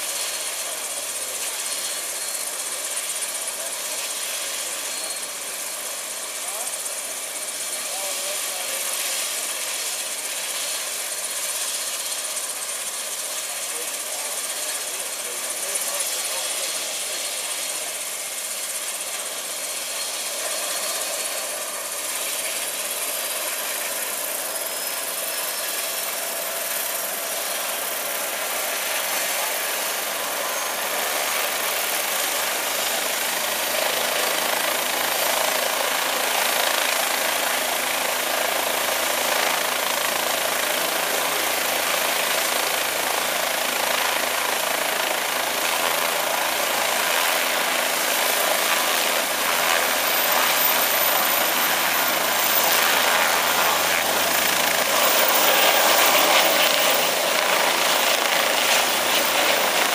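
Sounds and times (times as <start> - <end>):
helicopter turbine and rotors: 0.0 - 59.9
faint high whine: 48.1 - 59.9.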